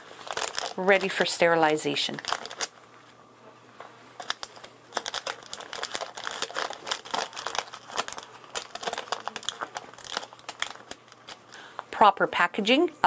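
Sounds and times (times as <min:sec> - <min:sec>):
sterilization pouch crinkling: 0:00.0 - 0:03.2, 0:04.2 - 0:11.9.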